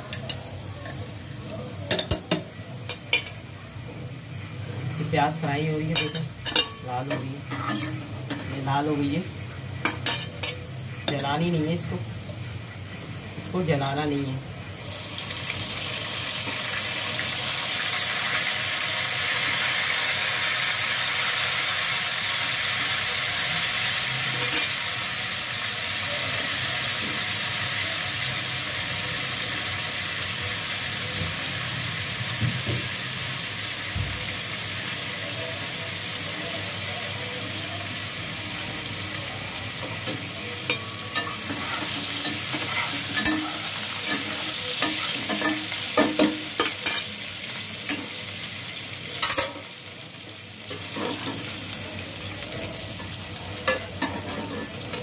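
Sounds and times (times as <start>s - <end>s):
onions sizzling in hot oil: 0.0s - 55.0s
spoon scraping a pot: 40.7s - 45.6s.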